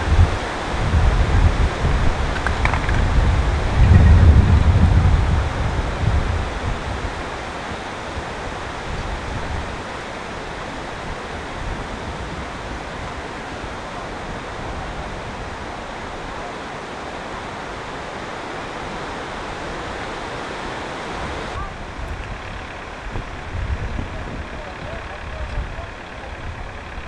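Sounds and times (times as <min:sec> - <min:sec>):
steady background hiss: 0:00.0 - 0:27.0
low rumble: 0:01.9 - 0:07.0.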